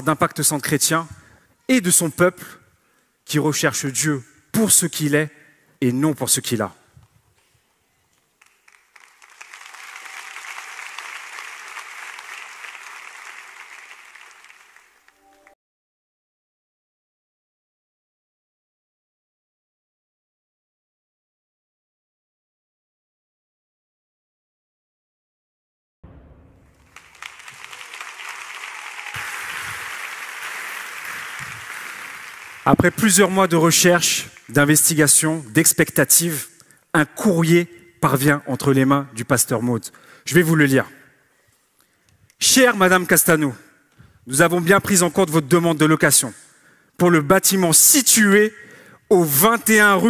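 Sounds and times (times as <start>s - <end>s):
audience applauding: 8.4s - 15.6s, 26.7s - 35.2s.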